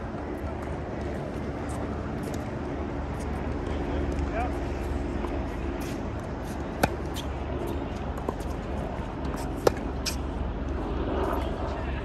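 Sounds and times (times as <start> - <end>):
steady low rumble: 0.0 - 12.0
tennis balls struck by racquets: 5.5 - 10.3.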